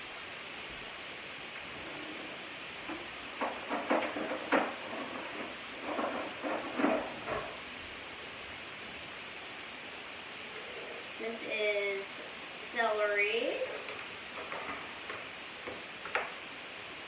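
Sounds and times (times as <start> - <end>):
chicken frying hiss: 0.0 - 17.0
metal utensils clinking in drawer: 13.7 - 15.4.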